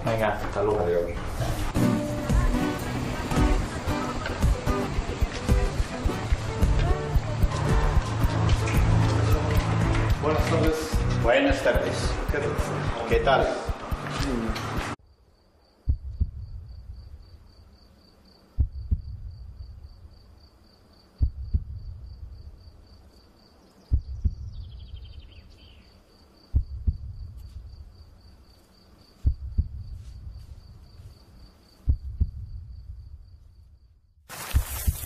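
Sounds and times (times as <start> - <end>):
cricket trilling: 15.1 - 35.0
deep thud: 15.9 - 16.8, 18.6 - 19.4, 21.2 - 22.0.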